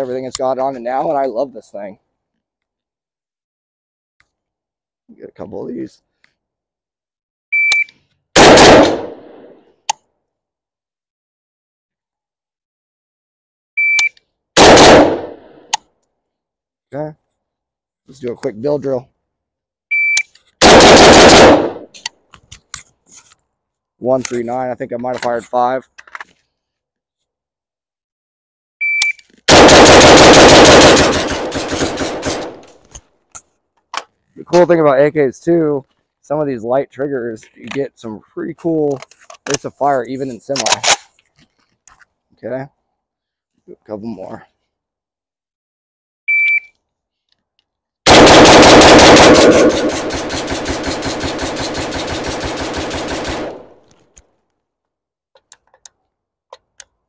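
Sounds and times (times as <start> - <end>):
rapid rifle shots: 8.4 - 9.6, 14.6 - 15.5, 20.6 - 21.9, 29.5 - 32.7, 48.1 - 53.8
electronic timer beep: 46.3 - 46.7.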